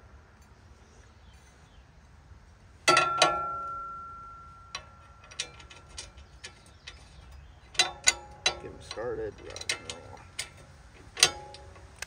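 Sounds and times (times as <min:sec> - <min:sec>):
light metallic clicks: 0:02.9 - 0:12.0
steel plate clanking: 0:02.9 - 0:12.0.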